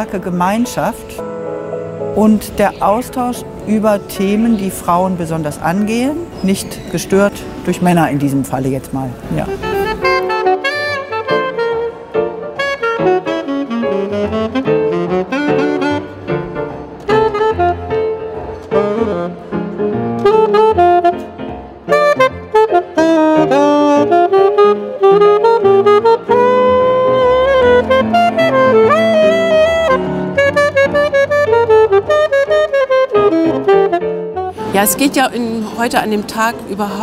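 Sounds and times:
keyboard accompaniment: 0.0s - 37.0s
alto saxophone melody: 9.2s - 37.0s.

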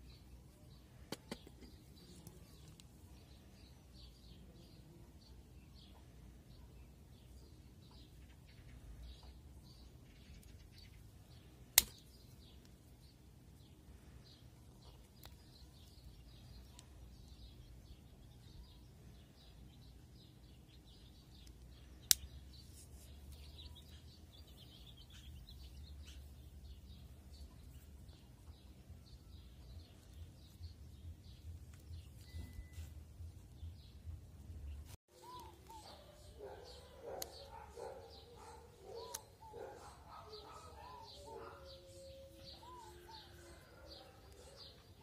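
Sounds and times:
birds chirping: 0.0s - 45.0s.

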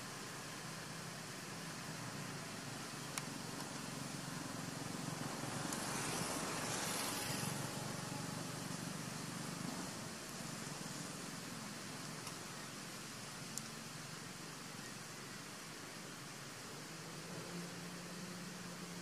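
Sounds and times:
outdoor background hiss: 0.0s - 19.0s
faint click: 3.1s - 3.7s.

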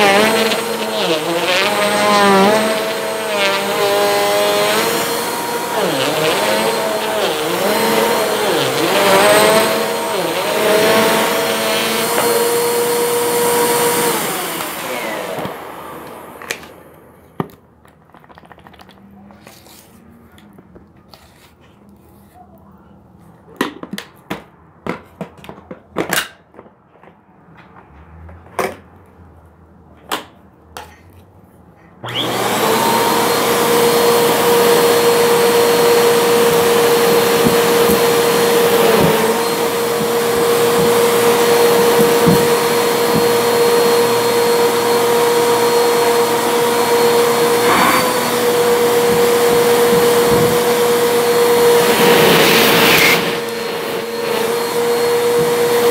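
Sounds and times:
vacuum cleaner running: 0.0s - 17.5s, 32.0s - 55.9s.

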